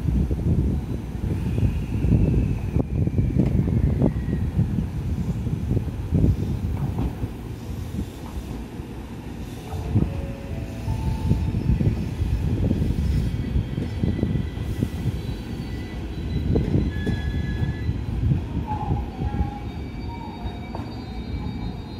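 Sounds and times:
train wheels rumbling on rails: 0.0s - 21.9s
brief wheel squeals: 10.8s - 21.9s.

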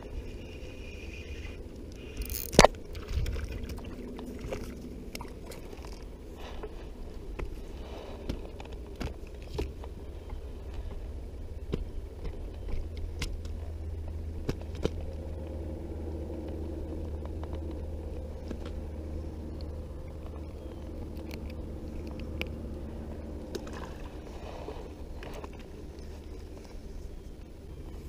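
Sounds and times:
boat motor humming: 0.0s - 28.0s
fishing tackle clicking: 2.1s - 3.1s.

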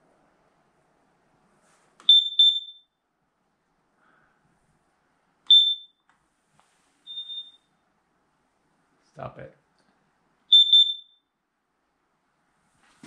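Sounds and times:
smoke detector beeping: 2.0s - 2.9s, 5.5s - 6.1s, 7.1s - 7.6s, 10.5s - 11.2s.

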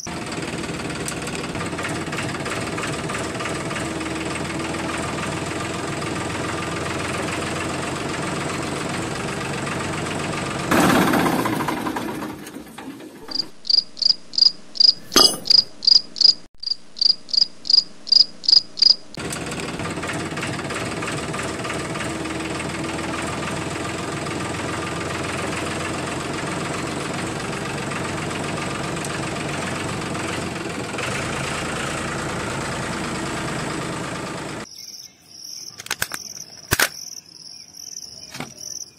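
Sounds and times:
loud engine burst: 0.0s - 12.5s, 19.2s - 34.7s
tractor engine idling: 0.0s - 13.5s, 19.2s - 34.7s.

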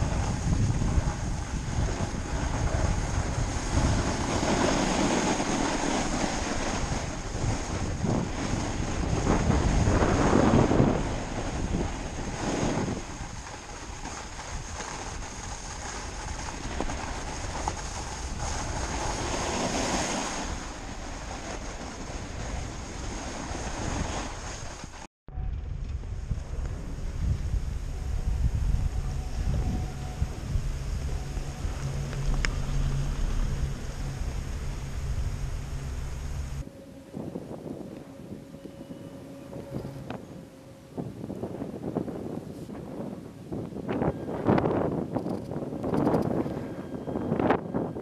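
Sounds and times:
snowboard sliding on snow: 0.0s - 25.1s, 26.2s - 37.8s
wind buffeting microphone: 0.0s - 48.0s.

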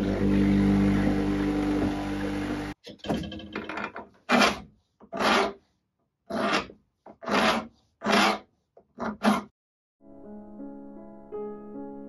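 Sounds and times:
hand file rasping on metal: 4.3s - 5.6s, 6.3s - 9.5s.

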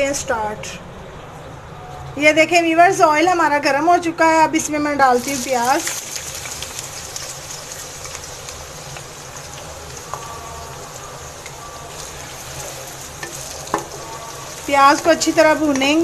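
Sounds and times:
onions sizzling in hot oil: 5.1s - 16.0s.

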